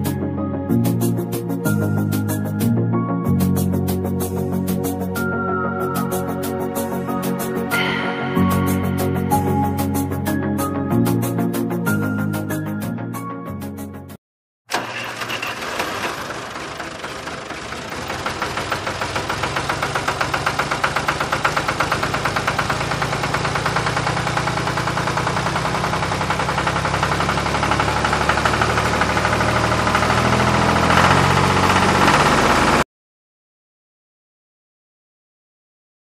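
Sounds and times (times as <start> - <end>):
motor knocking rapidly: 14.8 - 32.8.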